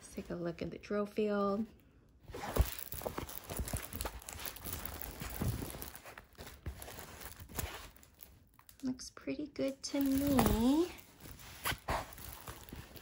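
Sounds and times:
plastic film crinkling: 2.3 - 9.1, 9.7 - 13.0.

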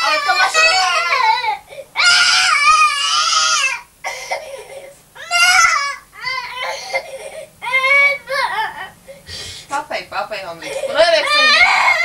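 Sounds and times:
small child crying: 0.0 - 9.0, 10.6 - 12.0.

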